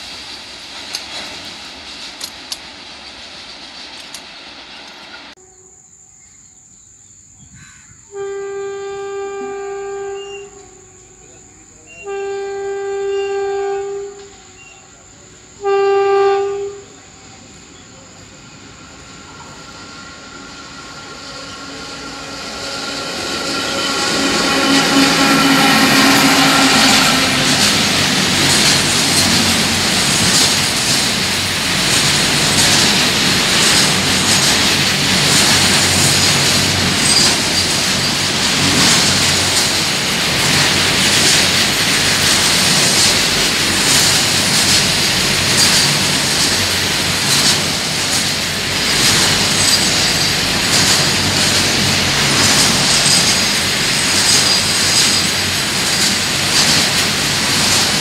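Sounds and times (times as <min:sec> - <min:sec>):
freight wagons rolling on rails: 0:00.0 - 0:05.4, 0:18.2 - 0:58.0
wheels clicking over rail joints: 0:00.0 - 0:05.4, 0:23.2 - 0:58.0
faint high wheel squeal: 0:09.4 - 0:15.3, 0:16.9 - 0:27.7, 0:37.0 - 0:38.3, 0:53.0 - 0:55.4.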